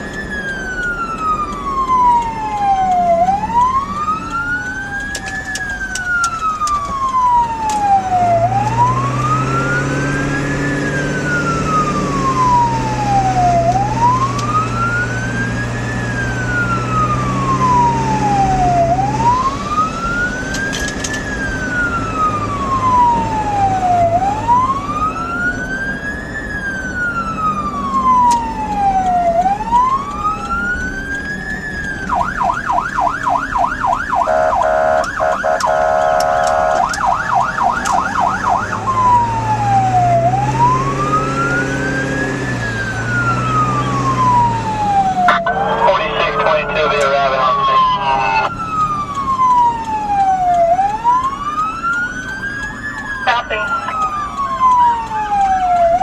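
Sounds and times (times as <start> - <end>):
siren wailing: 0.0 - 56.0
vehicle engine and road noise: 0.0 - 56.0
siren fast yelp: 32.1 - 42.1, 42.7 - 56.0.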